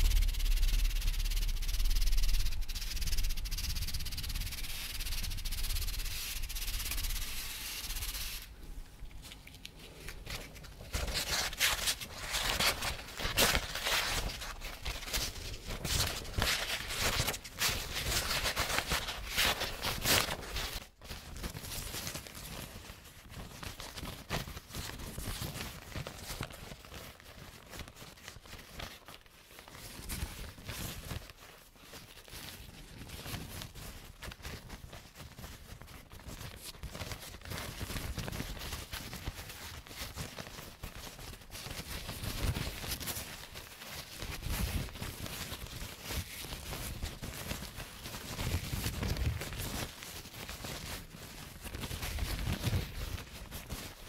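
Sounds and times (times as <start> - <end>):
paper rubbing and rustling: 0.0 - 8.6, 9.2 - 54.0
steady hiss: 0.0 - 9.0.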